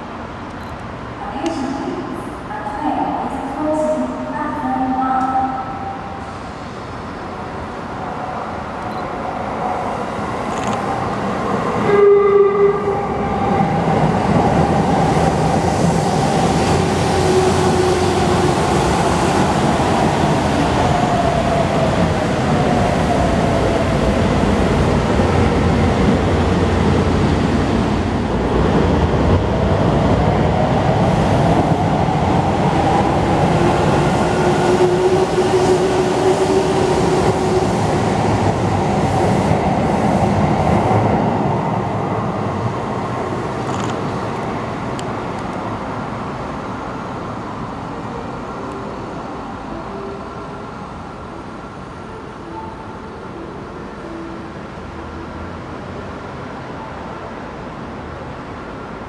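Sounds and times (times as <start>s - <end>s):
train running noise: 0.0s - 59.0s
train horn blast: 11.8s - 13.0s.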